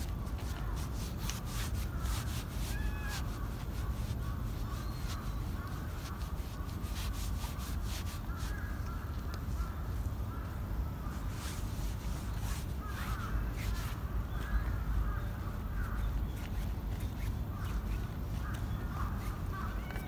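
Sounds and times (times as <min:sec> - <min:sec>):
hand stroking cat fur: 0:00.0 - 0:09.5
bird calls: 0:00.0 - 0:20.0.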